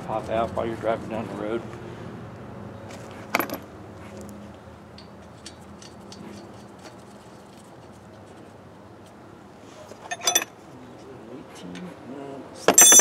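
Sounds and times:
metal nuts clinking on studs: 4.9 - 7.0, 10.0 - 10.6, 12.7 - 13.0.

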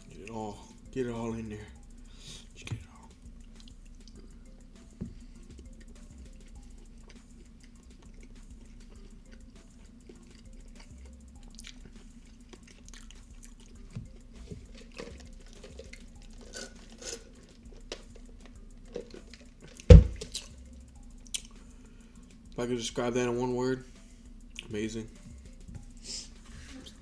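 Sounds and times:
low steady hum: 0.0 - 27.0
close-up chewing: 5.4 - 20.6
mouth clicks and lip smacks: 10.1 - 13.8, 21.2 - 21.6.

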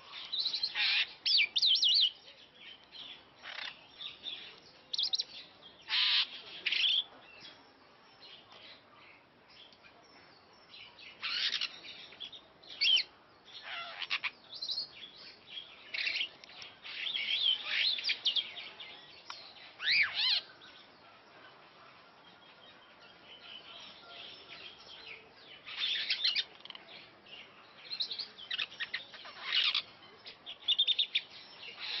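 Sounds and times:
starling singing: 19.8 - 20.5.

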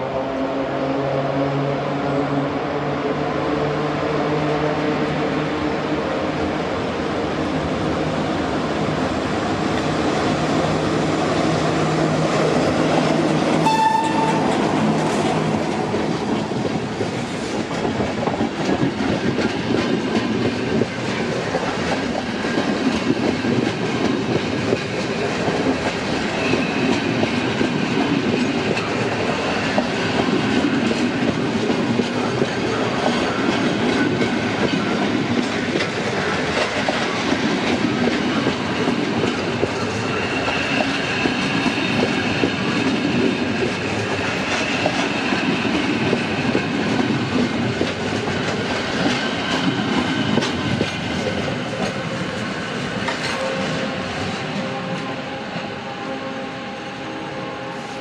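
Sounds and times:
passenger train passing: 0.0 - 58.0
train wheel noise: 0.0 - 58.0
train horn blast: 13.6 - 14.9, 53.2 - 58.0.

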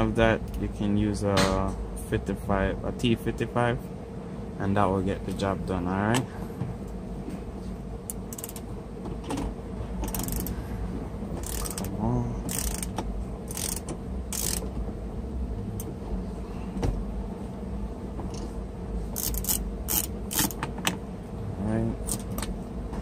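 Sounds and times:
hand ratchet clicking: 8.1 - 8.6, 10.0 - 10.6, 11.4 - 14.7, 19.2 - 20.6.

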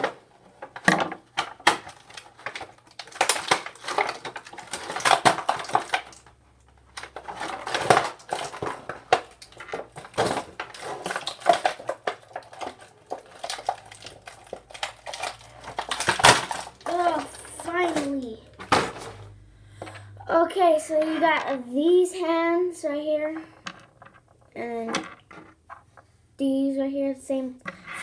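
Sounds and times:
plastic and cardboard package crinkling: 0.0 - 19.4.

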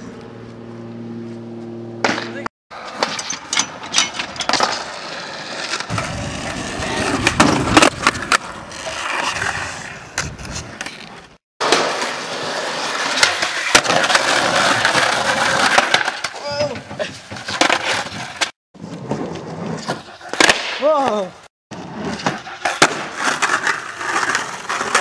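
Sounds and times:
skateboard wheels rolling on pavement: 0.0 - 25.0
skateboard popping and landing clacks: 2.0 - 5.0, 12.9 - 25.0.

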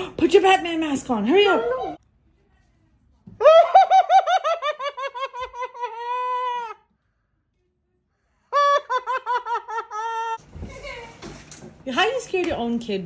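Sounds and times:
high-pitched maniacal cackling laugh: 3.4 - 6.8, 8.5 - 11.1.

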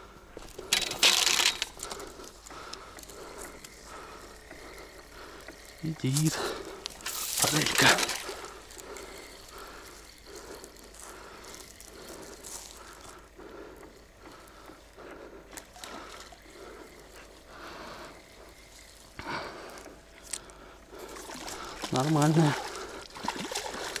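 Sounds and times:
fishing reel winding: 0.6 - 13.1
fish splashing: 1.0 - 12.4, 20.9 - 24.0.

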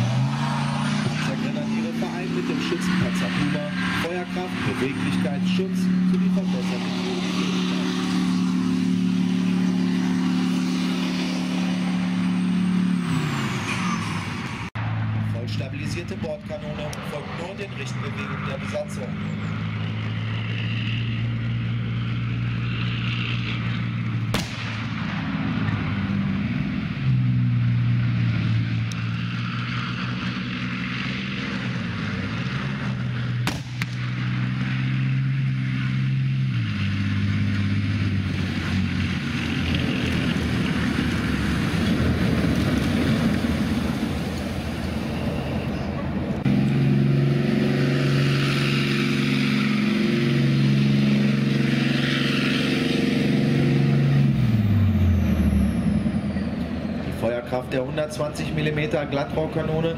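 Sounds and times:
diesel engine running: 0.0 - 59.9
sharp cracks: 24.2 - 25.5, 33.4 - 34.3.

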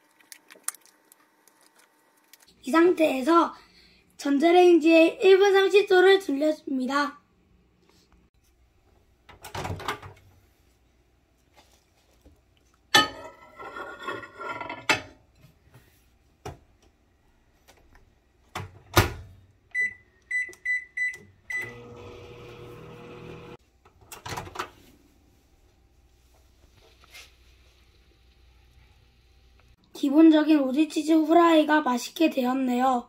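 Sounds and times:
keypad beeps: 19.8 - 21.7
microwave oven humming: 21.4 - 23.6.

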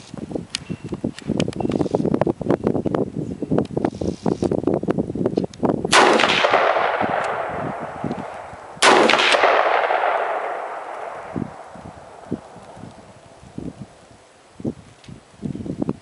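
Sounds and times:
rifle shots with echo: 5.9 - 12.6.

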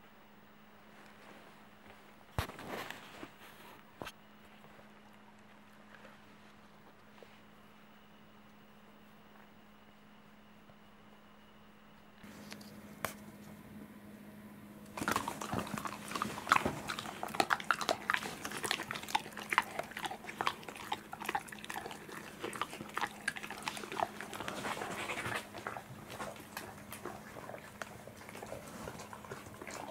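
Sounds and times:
dog mouth clicks and smacks: 14.9 - 29.9.

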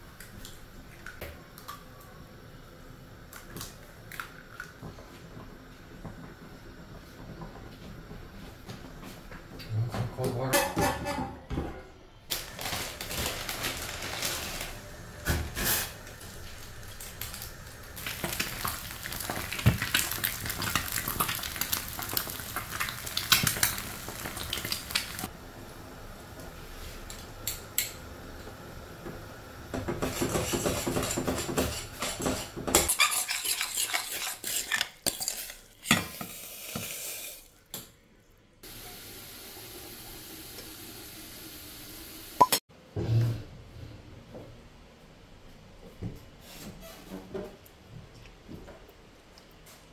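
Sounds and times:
sizzling: 12.3 - 37.6, 38.6 - 42.5
utensil clinking in a metal saucepan: 32.8 - 36.1.

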